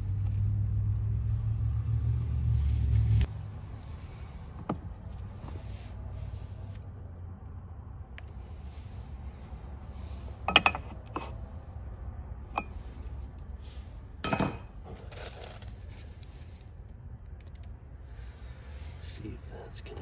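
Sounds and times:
tools clattering: 10.5 - 11.4, 14.2 - 15.8.

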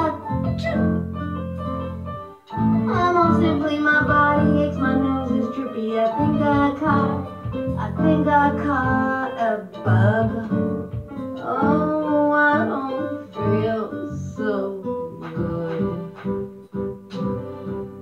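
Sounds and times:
guitar accompaniment: 0.0 - 18.0
person singing: 2.6 - 10.8, 11.4 - 16.3.

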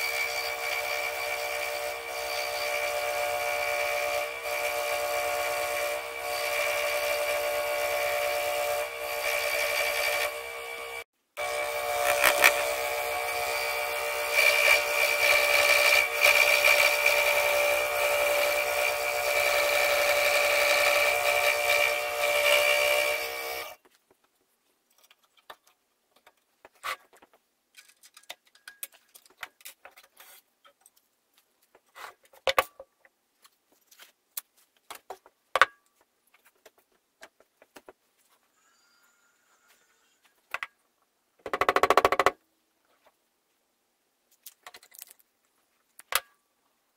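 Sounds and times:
scroll saw cutting wood: 0.0 - 23.8.

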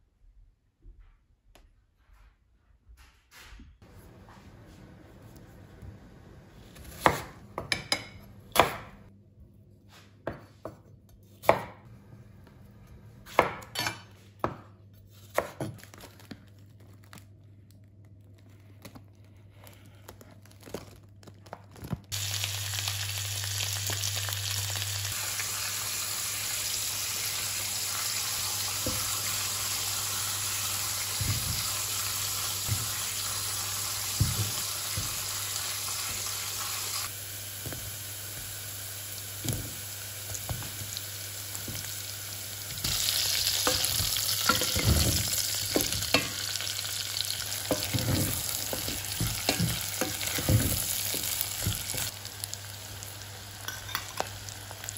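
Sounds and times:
cooking hiss: 22.1 - 54.9
utensils and dishes clinking: 42.9 - 46.5, 53.6 - 54.4.

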